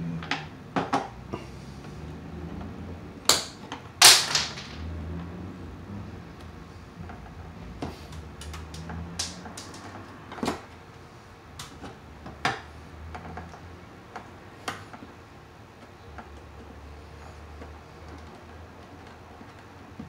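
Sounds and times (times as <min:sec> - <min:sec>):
pliers and wires clicking: 0:08.1 - 0:10.0.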